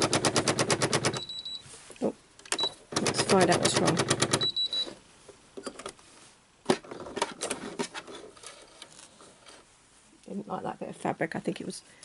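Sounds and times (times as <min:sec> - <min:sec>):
sewing machine stitching: 0:00.0 - 0:01.3, 0:02.9 - 0:04.6.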